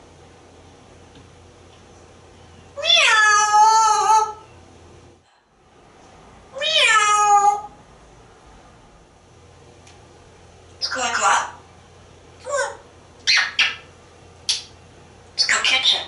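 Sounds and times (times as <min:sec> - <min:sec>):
parrot imitating cat meow: 0:02.8 - 0:04.4, 0:06.5 - 0:07.8.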